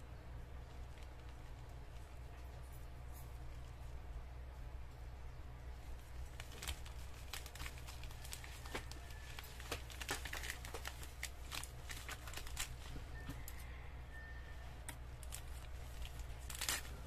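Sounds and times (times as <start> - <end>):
plastic mailer crinkling: 6.1 - 13.5, 15.2 - 17.0.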